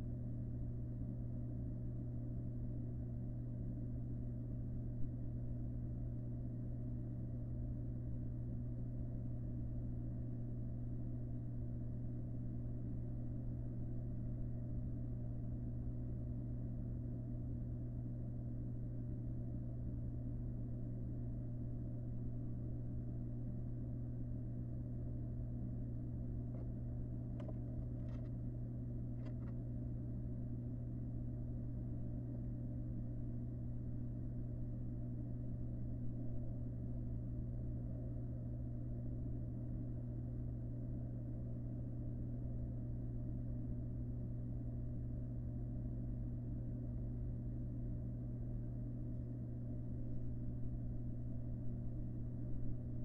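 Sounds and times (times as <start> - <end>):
low electrical hum: 0.0 - 53.0.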